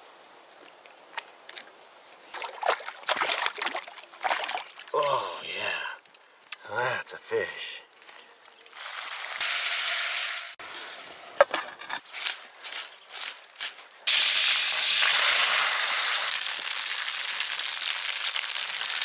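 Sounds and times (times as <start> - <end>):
fish and garlic sizzling in pan: 8.7 - 11.3, 14.1 - 19.0.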